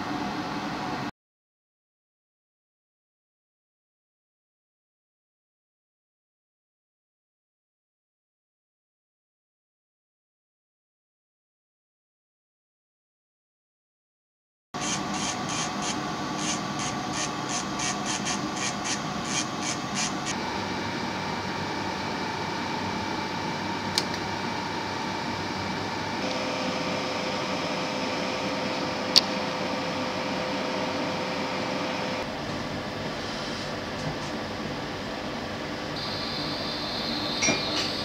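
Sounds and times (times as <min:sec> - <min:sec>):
faint hum: 0:14.8 - 0:38.0.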